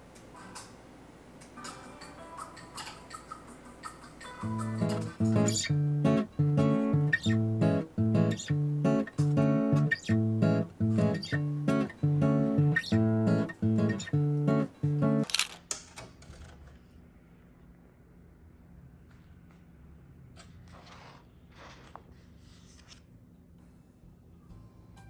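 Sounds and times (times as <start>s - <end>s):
acoustic guitar strumming chords: 4.5s - 15.2s.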